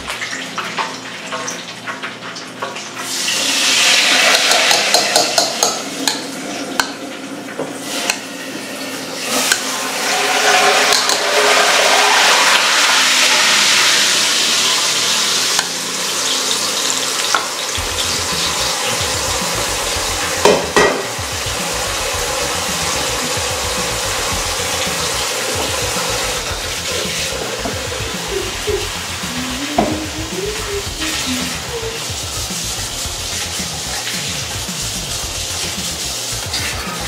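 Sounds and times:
pan sizzling: 0:00.0 - 0:37.0.

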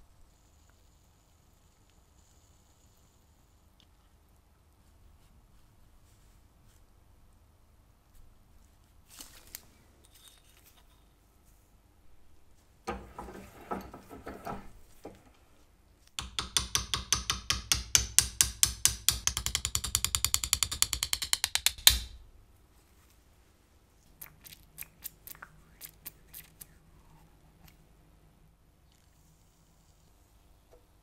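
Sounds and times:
hammer tapping on steel rod: 0:16.2 - 0:22.2.

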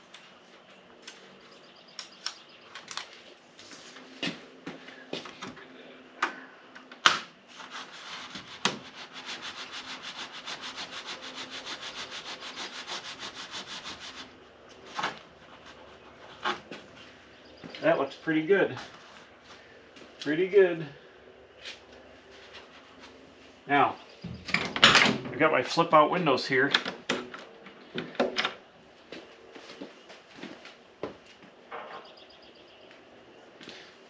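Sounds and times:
hand rubbing taped edge: 0:07.5 - 0:16.8.

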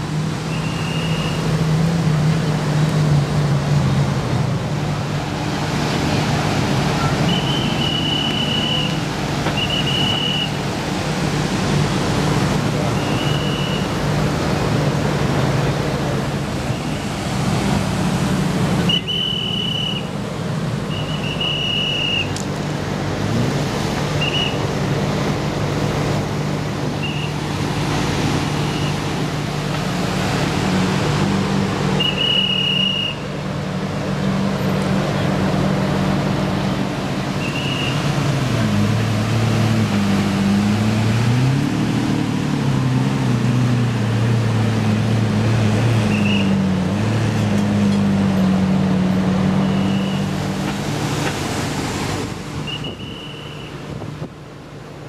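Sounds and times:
car engines idling: 0:00.0 - 0:55.0
engine revving: 0:20.9 - 0:33.1, 0:33.8 - 0:52.5.

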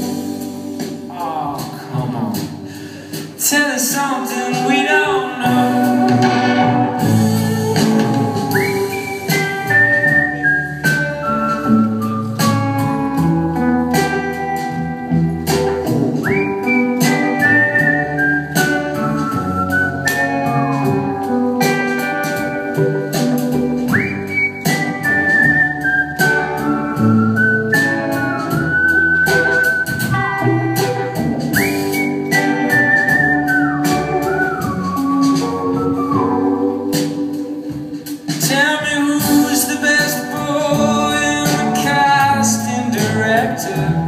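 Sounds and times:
steady drum beat: 0:00.0 - 0:44.0
guitar chords: 0:04.1 - 0:44.0
man whistling melody: 0:07.0 - 0:13.4, 0:15.5 - 0:37.7.

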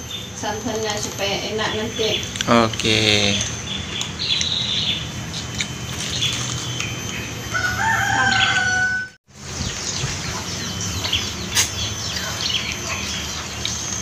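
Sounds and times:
small birds chirping: 0:00.0 - 0:14.0
rooster crowing: 0:07.4 - 0:09.2.

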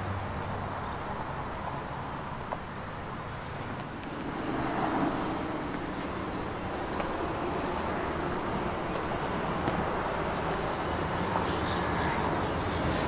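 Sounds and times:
vehicle engine hum: 0:00.0 - 0:13.0.

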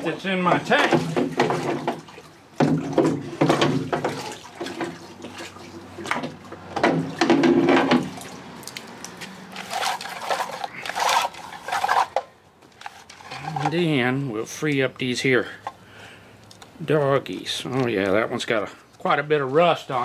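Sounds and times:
liquid splashing: 0:00.6 - 0:12.1.

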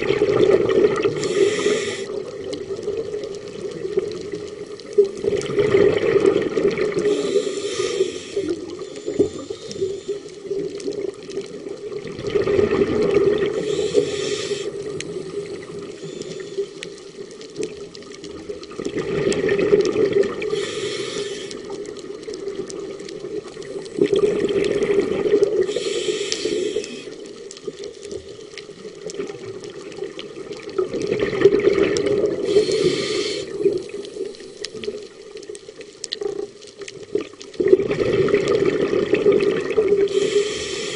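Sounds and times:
exhaled bubbles rushing: 0:00.0 - 0:07.4, 0:08.2 - 0:16.4, 0:17.6 - 0:20.6, 0:21.5 - 0:25.8, 0:28.6 - 0:35.5, 0:36.2 - 0:40.3
diver breathing through regulator: 0:01.1 - 0:02.3, 0:06.9 - 0:10.5, 0:13.5 - 0:17.0, 0:20.3 - 0:21.8, 0:25.5 - 0:27.4, 0:32.3 - 0:35.0, 0:40.1 - 0:40.9.

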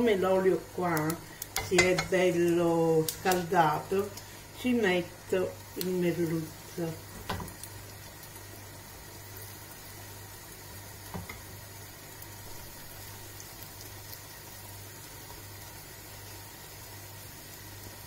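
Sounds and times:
low constant hum: 0:00.0 - 0:14.2
fish sizzling in hot oil: 0:00.0 - 0:18.0
food tapping into pan: 0:07.2 - 0:07.6.

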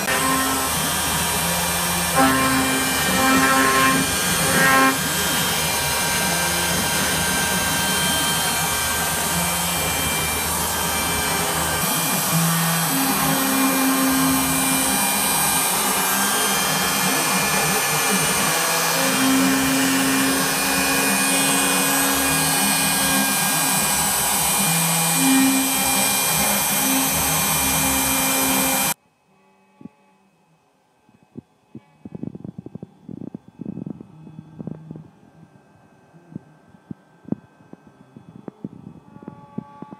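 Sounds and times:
router spindle cutting wood: 0:00.0 - 0:29.0.

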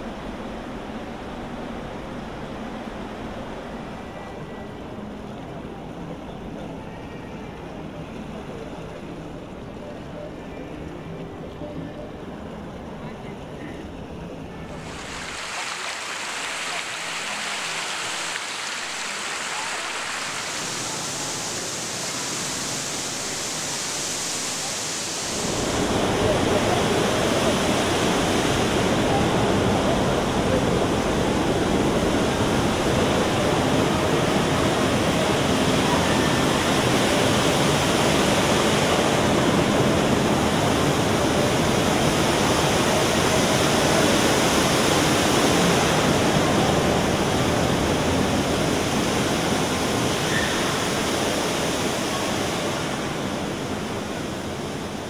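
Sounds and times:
whirlpool draining water hiss: 0:00.0 - 0:55.0
falling water crashing into pool: 0:14.8 - 0:28.9.

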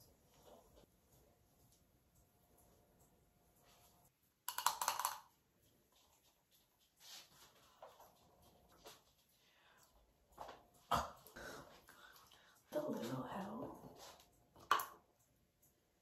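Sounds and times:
small hard objects clattering: 0:04.5 - 0:05.3.

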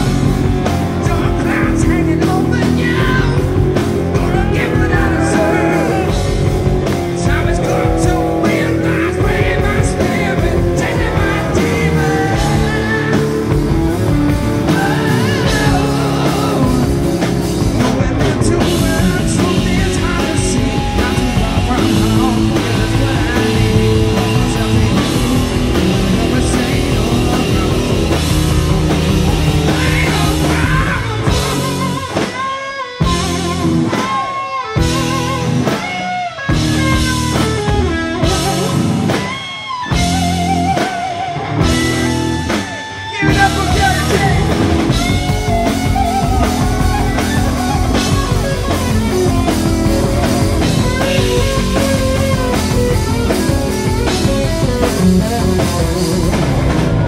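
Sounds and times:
electric guitar bending notes: 0:00.0 - 0:57.0
hard rock band playing: 0:00.0 - 0:57.0.

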